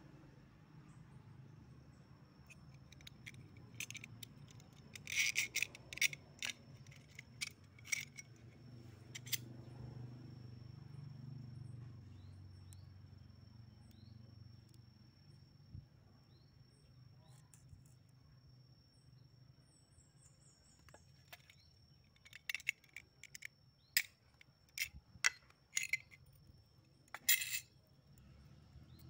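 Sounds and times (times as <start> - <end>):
metal parts clicking together: 2.5 - 9.4, 21.2 - 26.4, 27.1 - 27.7.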